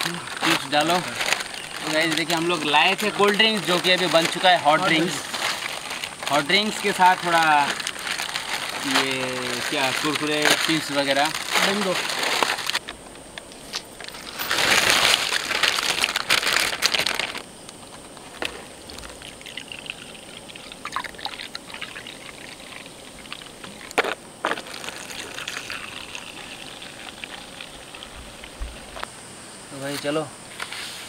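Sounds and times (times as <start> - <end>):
liquid trickling: 18.8 - 29.0
drink pouring into cups: 18.9 - 28.9.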